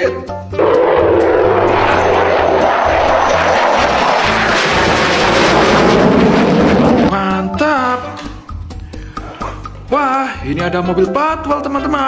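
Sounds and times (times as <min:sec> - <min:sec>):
faint high whine: 0:00.6 - 0:06.1
fighter jet flying past: 0:00.6 - 0:07.4.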